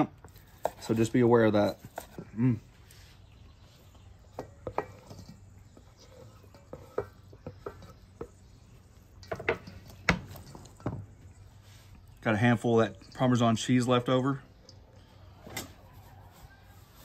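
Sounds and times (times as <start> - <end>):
spatula stirring in bowl: 3.0 - 12.1.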